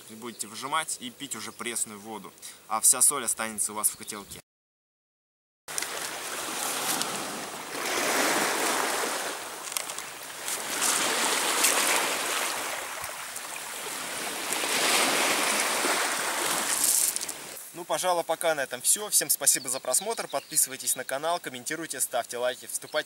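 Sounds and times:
waves washing on pebble beach: 5.7s - 17.6s.

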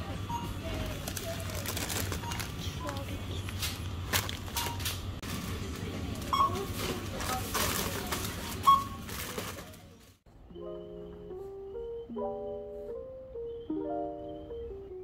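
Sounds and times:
faint voices: 0.0s - 3.8s, 5.2s - 10.2s
plastic bags rustling in basket: 0.8s - 5.6s, 6.5s - 10.0s
short electronic beeps: 6.3s - 6.6s.

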